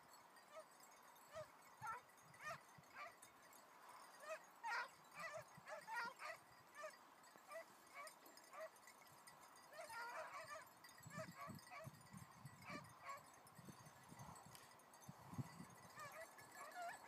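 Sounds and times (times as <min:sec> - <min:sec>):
distant hounds yelping: 0:00.4 - 0:03.3, 0:03.9 - 0:09.0, 0:09.6 - 0:13.4, 0:15.4 - 0:17.0.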